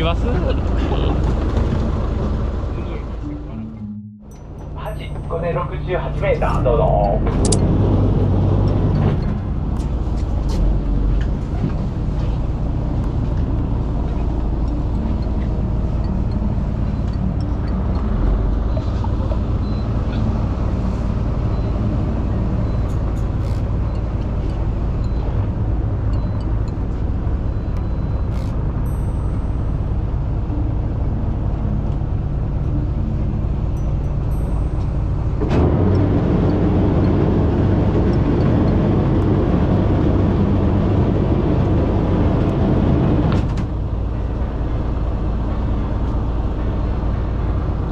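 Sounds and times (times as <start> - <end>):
boat engine rumbling: 0.0 - 47.9
wind: 0.0 - 47.9.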